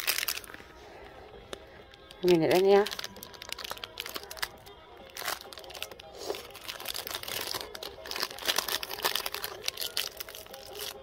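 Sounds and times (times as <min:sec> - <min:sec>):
plastic wrapper crinkling: 0:00.0 - 0:00.7, 0:01.9 - 0:11.0.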